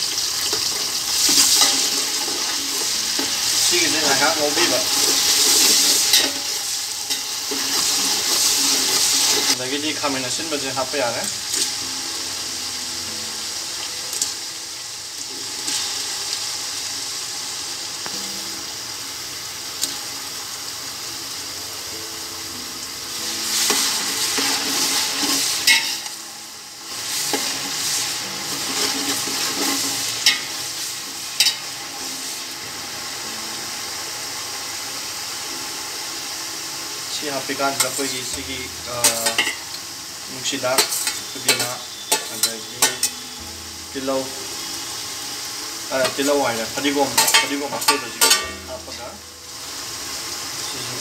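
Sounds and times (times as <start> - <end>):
vegetables sizzling in hot oil: 0.0 - 51.0
spoon stirring and scraping: 27.2 - 30.5, 40.8 - 43.2
spoon clinking against pot: 47.2 - 48.5.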